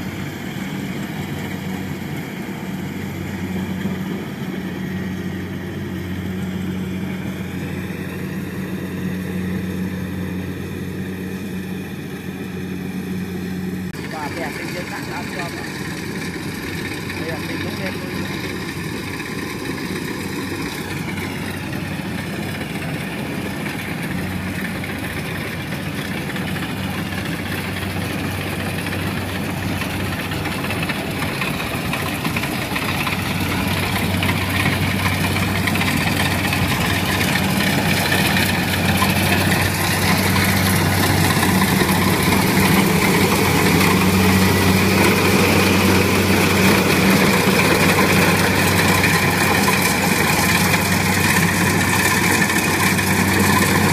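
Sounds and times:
combine harvester engine hum: 0.0 - 53.9
cutter and threshing drum clatter: 14.0 - 53.9.

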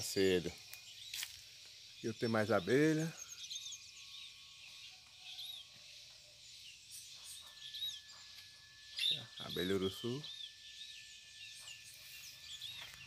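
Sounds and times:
steady high hiss: 0.0 - 3.1
small birds chirping: 0.0 - 13.0.

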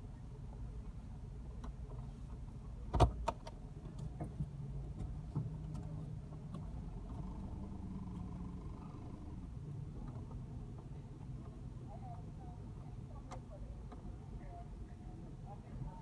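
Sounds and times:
car engine and road hum: 0.0 - 16.0.

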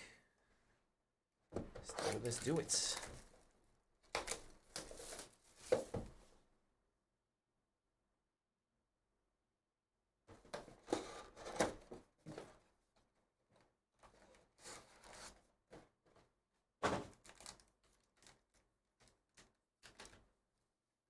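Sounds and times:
foil packs rustling and crinkling: 17.1 - 20.1.

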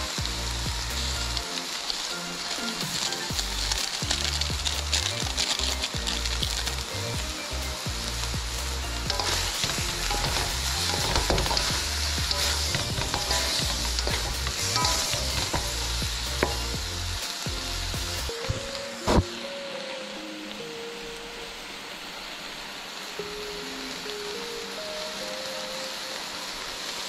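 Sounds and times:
shrimp and noodles sizzling in a wok: 0.0 - 27.0
spatulas scraping against pan: 9.1 - 15.8.

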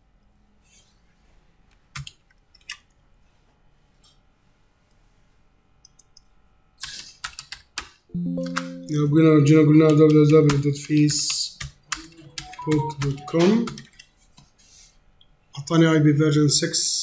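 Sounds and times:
computer mouse clicking: 5.8 - 8.0.

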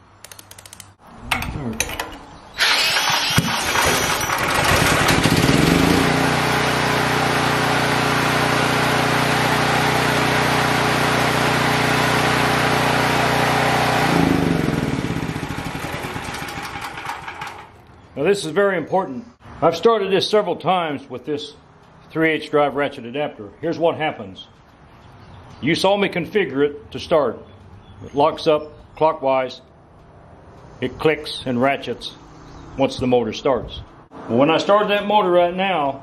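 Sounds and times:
generator engine running: 2.6 - 18.0.

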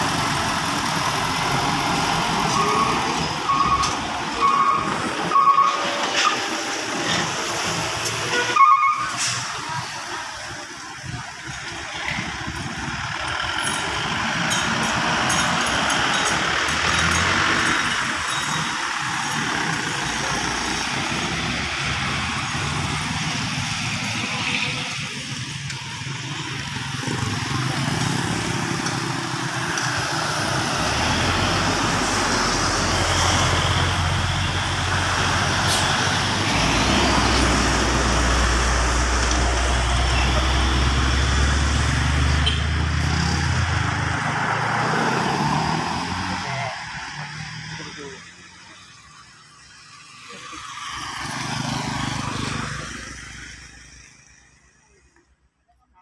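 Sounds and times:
cars passing: 0.0 - 55.5
truck engine rumble: 0.0 - 55.6.

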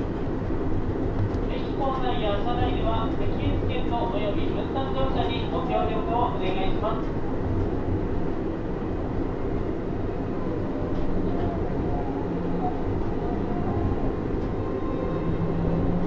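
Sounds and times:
monorail car rumble: 0.0 - 16.0.

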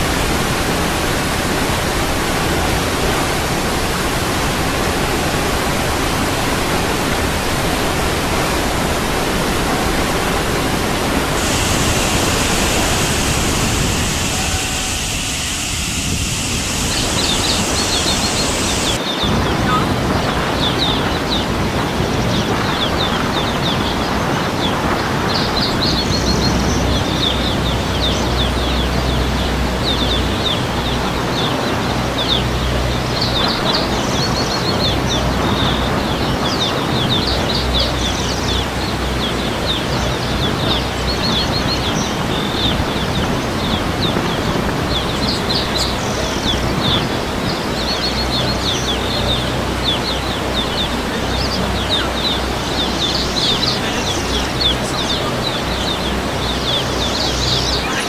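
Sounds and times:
river water rushing: 0.0 - 19.6, 45.1 - 58.0
boat engine hum: 0.0 - 58.0
birds chirping: 7.7 - 58.0.

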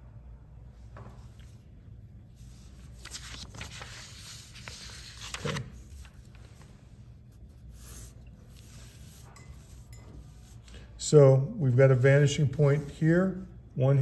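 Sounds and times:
paper rustling and scraping: 2.3 - 10.7.

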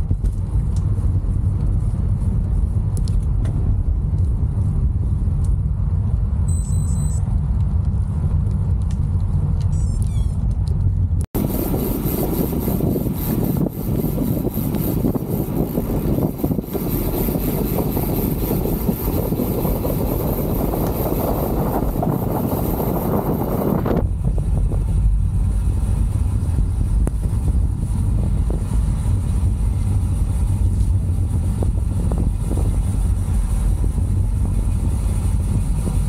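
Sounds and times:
bike tyre noise on tarmac: 0.0 - 36.0
deep low rumble: 0.0 - 36.0
wind buffeting microphone: 7.2 - 36.0.

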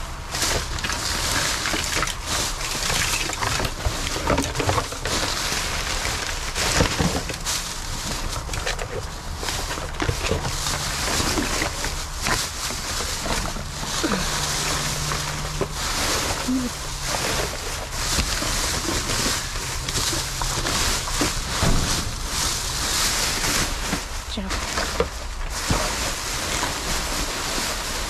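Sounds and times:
plastic bags rustling: 0.0 - 28.0.

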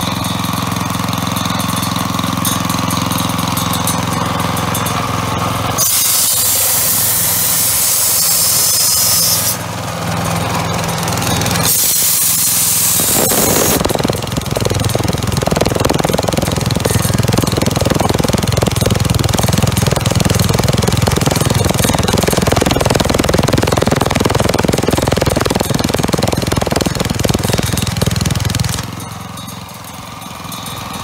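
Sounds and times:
air compressor engine chugging: 0.0 - 31.0
air hissing out: 5.8 - 9.6, 11.6 - 13.8.

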